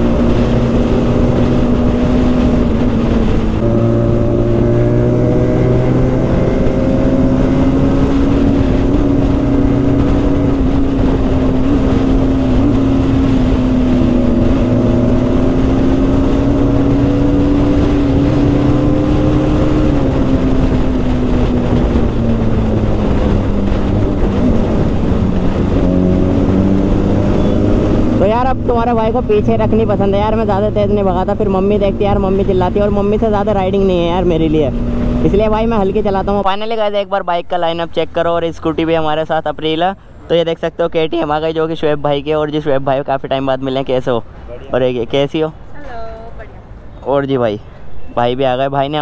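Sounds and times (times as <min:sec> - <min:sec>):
motorcycle engine running: 0:00.0 - 0:36.4
wind and road noise: 0:00.0 - 0:49.0.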